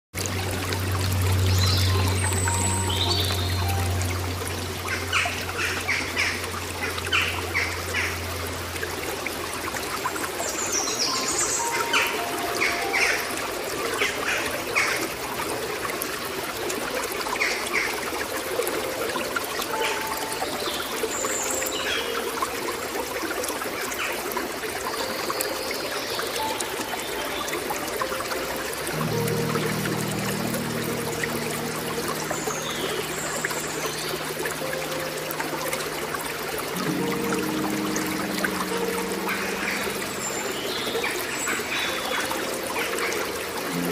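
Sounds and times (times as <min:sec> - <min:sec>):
water trickling over rocks: 0:00.1 - 0:43.9
bird calls: 0:10.5 - 0:15.1.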